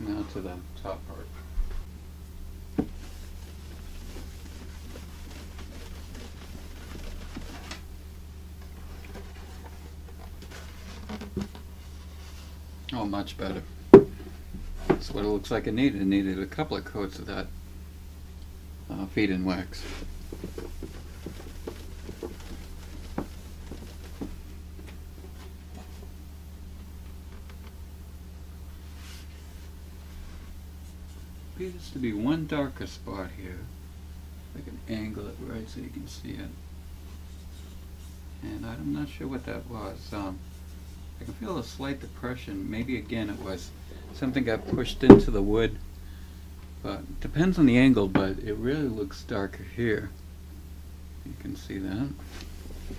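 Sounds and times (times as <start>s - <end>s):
steady low hum: 0.0s - 52.9s
cloth rubbing on wood: 2.7s - 7.9s, 19.6s - 26.2s, 28.8s - 31.9s, 36.9s - 45.0s
knocks on wood: 13.9s - 14.2s.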